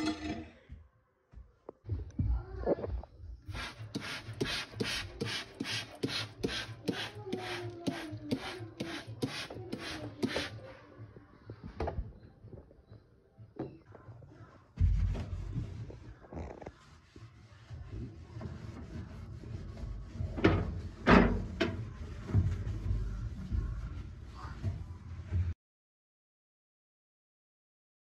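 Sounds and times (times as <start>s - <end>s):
spray bottle hissing sprays: 3.5s - 10.5s
sponge scrubbing: 3.5s - 10.6s, 14.8s - 25.6s.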